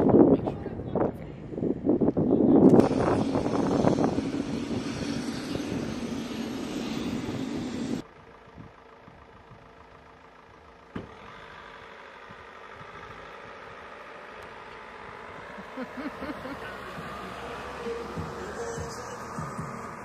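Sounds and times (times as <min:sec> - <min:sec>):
jet engine rumble and whine: 0:00.0 - 0:08.1, 0:12.4 - 0:20.0.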